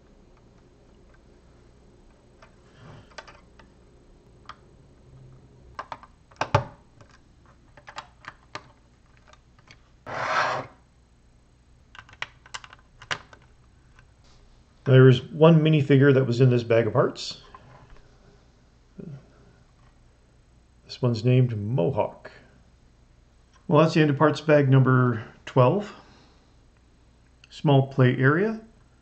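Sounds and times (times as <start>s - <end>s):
plastic rubbing scrape: 10.0s - 10.8s
plastic bricks clicking together: 11.9s - 13.5s.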